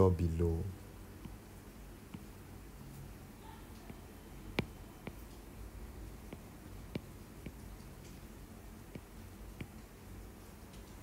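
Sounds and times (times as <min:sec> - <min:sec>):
low steady hiss: 0:00.0 - 0:11.0
stylus tapping glass screen: 0:01.2 - 0:02.4, 0:03.8 - 0:08.3, 0:08.9 - 0:09.9.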